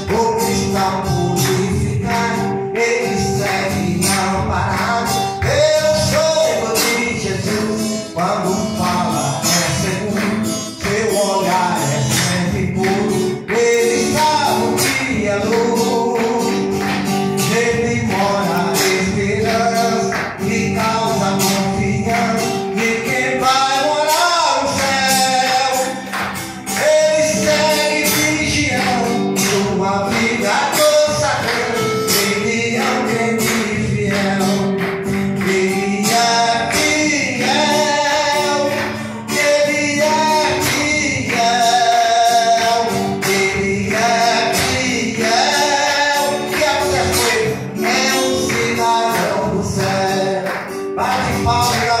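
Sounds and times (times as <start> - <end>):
man singing gospel song: 0.0 - 52.0
musical accompaniment with beat: 0.0 - 52.0.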